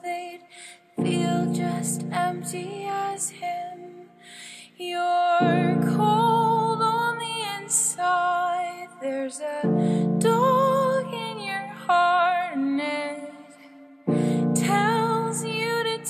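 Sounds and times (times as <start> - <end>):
woman singing: 0.0 - 16.0
sustained keyboard chords: 5.4 - 7.4, 9.6 - 11.9, 14.1 - 16.0.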